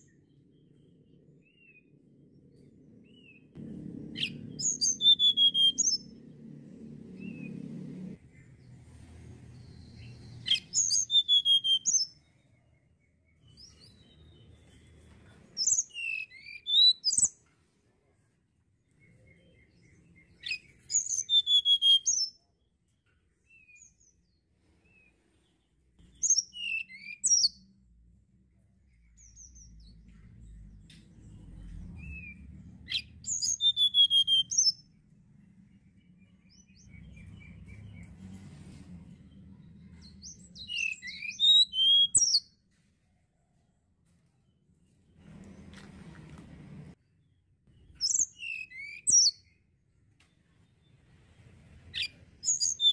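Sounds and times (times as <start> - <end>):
bird singing whistled trills: 4.2 - 6.2, 9.7 - 12.4, 15.6 - 17.4, 19.0 - 22.5, 26.1 - 27.8, 32.0 - 35.0, 40.0 - 42.6, 47.9 - 49.6, 51.9 - 52.9.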